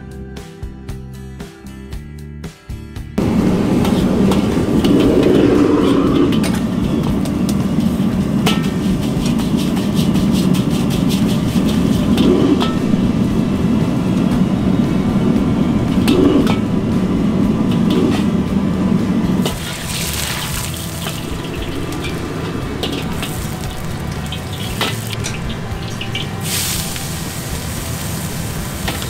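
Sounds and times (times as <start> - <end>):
gas burner roaring: 3.2 - 29.0
brush scraping wok: 3.8 - 14.6, 19.4 - 29.0
water hissing in hot wok: 7.8 - 13.7, 19.4 - 29.0.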